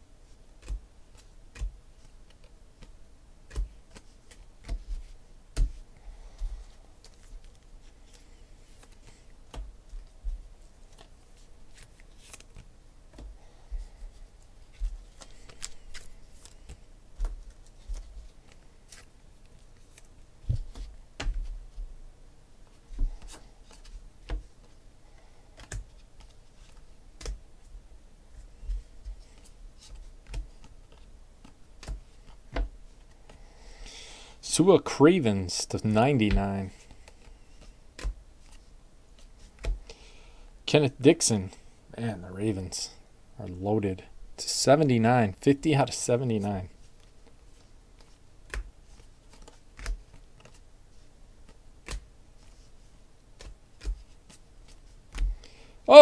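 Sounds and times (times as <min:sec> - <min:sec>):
trading cards being flipped: 0:07.0 - 0:13.3, 0:14.4 - 0:21.4, 0:46.9 - 0:52.7.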